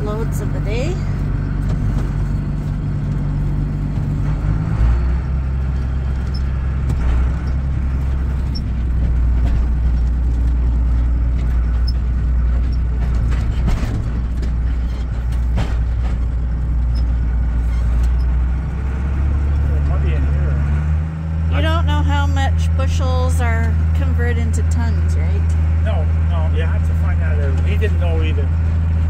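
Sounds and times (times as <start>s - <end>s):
tractor diesel engine running: 0.0s - 29.0s
cab knocks and rattles: 1.2s - 4.6s, 5.7s - 18.5s.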